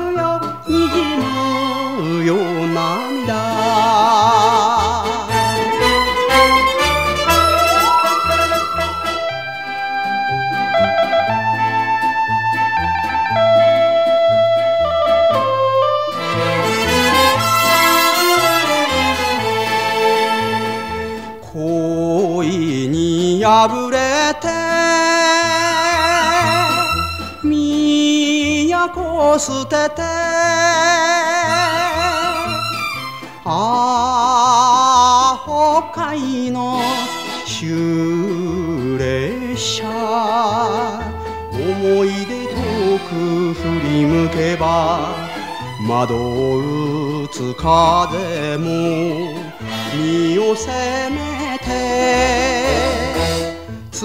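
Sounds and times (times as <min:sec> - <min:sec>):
band playing with bass line: 0:00.0 - 0:54.0
melody with wide vibrato: 0:05.1 - 0:12.6, 0:15.7 - 0:20.9
melody line with wide vibrato: 0:05.8 - 0:11.2.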